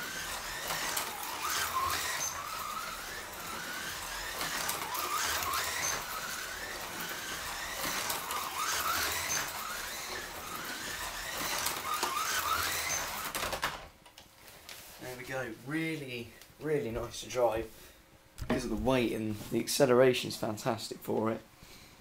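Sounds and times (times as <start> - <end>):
slot car motor whining: 0.0 - 13.9.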